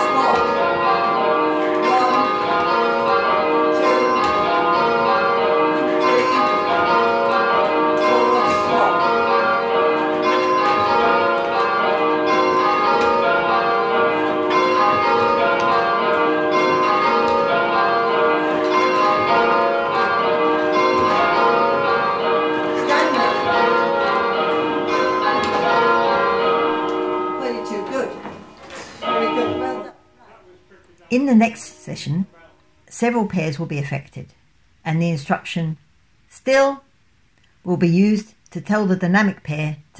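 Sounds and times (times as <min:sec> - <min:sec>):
church bells ringing in changes: 0:00.0 - 0:30.0.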